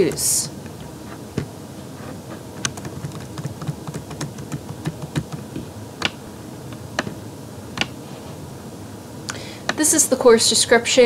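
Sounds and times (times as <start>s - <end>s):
computer mouse clicking: 2.6s - 6.2s, 7.8s - 8.0s.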